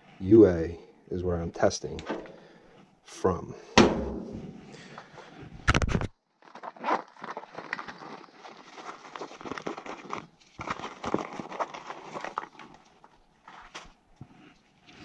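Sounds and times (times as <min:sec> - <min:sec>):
close rustling and handling noise: 0:04.5 - 0:15.0.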